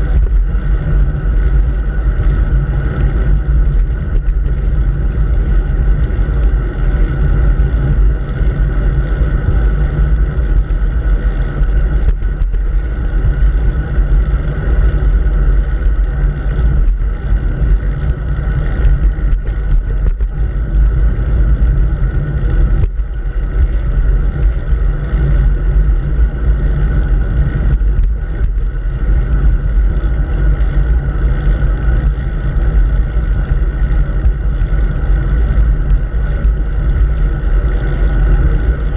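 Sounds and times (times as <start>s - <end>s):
wind and road rumble: 0.0s - 38.9s.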